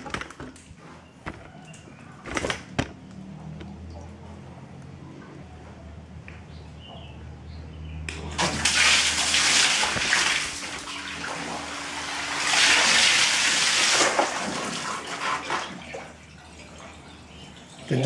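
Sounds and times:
pump humming: 8.2s - 18.0s
water gushing from hose: 8.3s - 18.0s.

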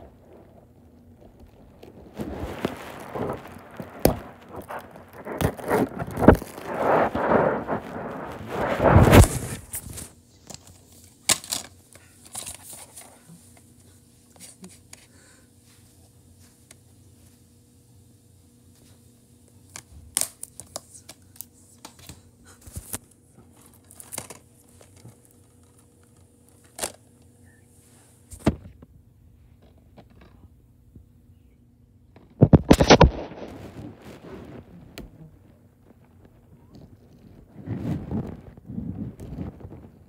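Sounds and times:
faint steady hum: 0.0s - 40.0s
rubbing against microphone: 2.0s - 10.1s, 36.8s - 40.0s.

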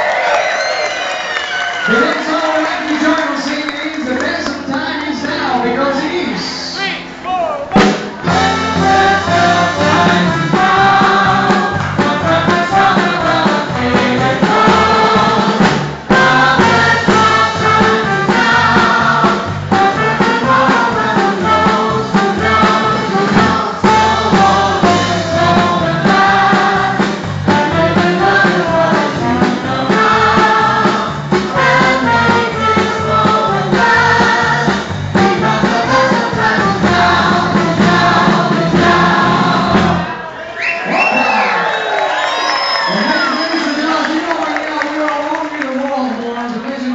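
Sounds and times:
instrumental backing with beat: 7.0s - 40.2s
group of voices singing: 7.8s - 40.4s.

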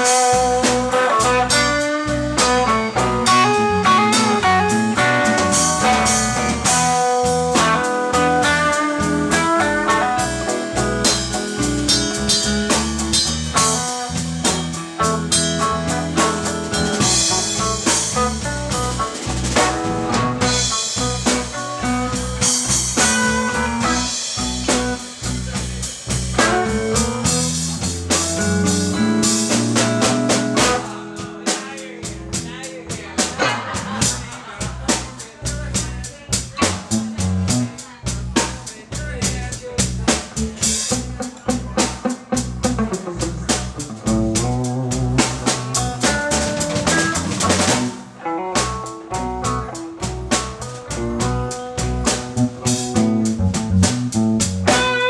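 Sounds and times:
electric guitar lines: 0.0s - 32.4s, 40.9s - 55.0s
drum kit: 0.0s - 55.0s
electric bass: 0.0s - 55.0s.

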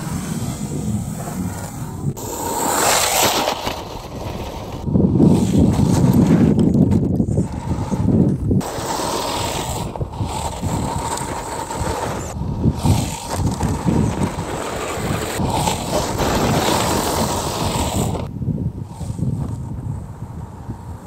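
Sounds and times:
tyres crunching over gravel: 2.6s - 18.3s.

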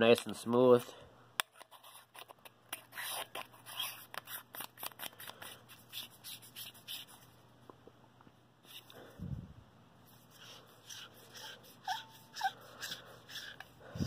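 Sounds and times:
fingers scraping metal flashlight: 10.3s - 13.8s.

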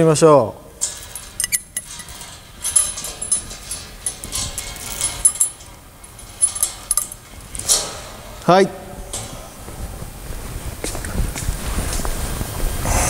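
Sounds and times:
steel chain rattling: 0.7s - 9.8s
metal-on-metal clinks: 0.8s - 8.2s.

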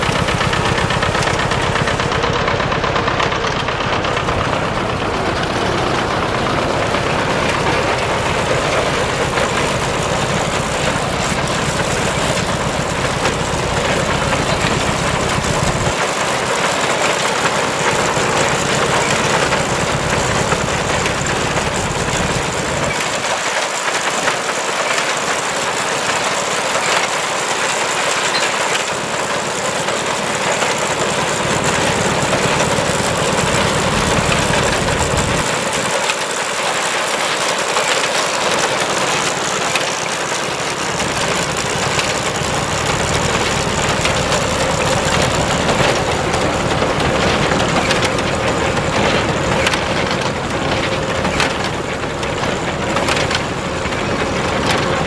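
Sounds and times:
tractor diesel engine running: 0.0s - 55.0s
mechanical clatter of binder: 28.2s - 55.0s.

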